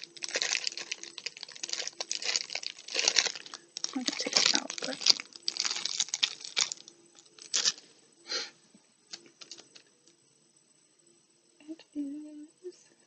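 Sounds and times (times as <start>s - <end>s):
plastic bag crinkling: 0.0s - 7.9s, 9.1s - 9.8s.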